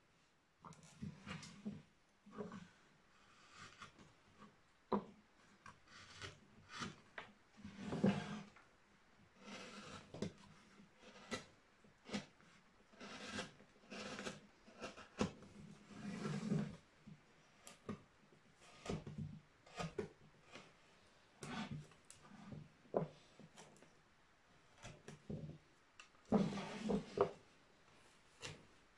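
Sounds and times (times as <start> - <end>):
chisel scraping wood: 3.2 - 4.0, 5.6 - 7.0, 7.6 - 8.6, 9.4 - 16.8, 18.6 - 23.8, 26.3 - 27.4.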